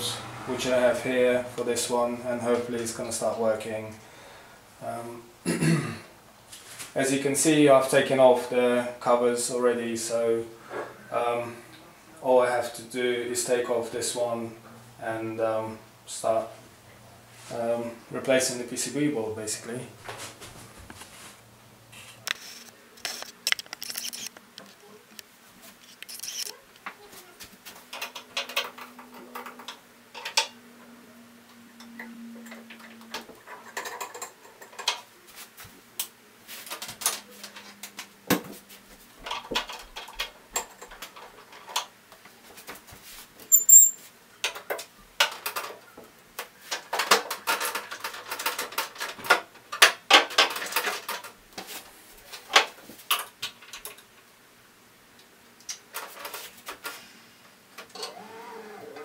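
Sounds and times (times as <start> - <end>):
plastic panels clicking and rattling: 46.4 - 51.4.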